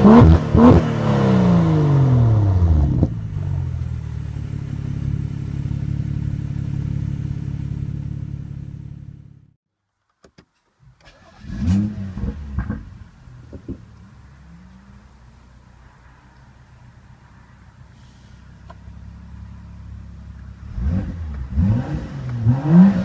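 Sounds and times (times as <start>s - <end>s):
car engine idling: 1.7s - 9.6s, 11.0s - 22.6s
engine starting and revving: 10.9s - 13.1s, 20.6s - 23.0s.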